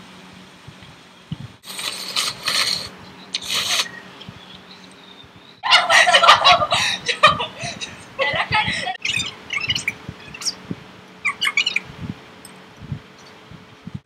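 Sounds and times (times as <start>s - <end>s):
noodles being slurped: 1.6s - 3.9s
women laughing loudly: 5.6s - 9.0s.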